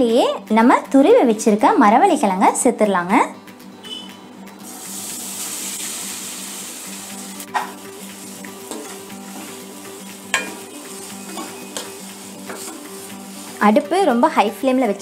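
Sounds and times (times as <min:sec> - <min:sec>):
food sizzling in hot fat: 0:04.6 - 0:14.3
spatula stirring in a pan: 0:07.5 - 0:14.0
spatula knocking on a pan: 0:10.3 - 0:10.7.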